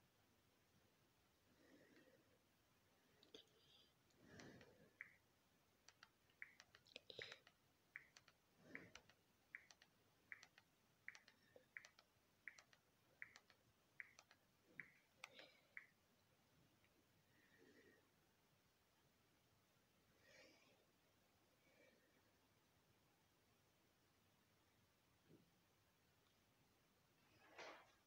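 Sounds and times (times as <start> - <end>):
quiet clicks: 5.8 - 16.0.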